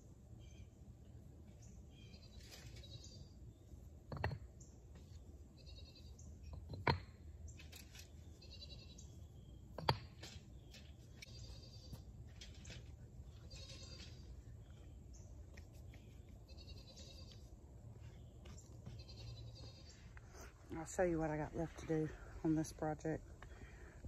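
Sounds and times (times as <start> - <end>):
brick knocking on brick: 4.1 - 4.5.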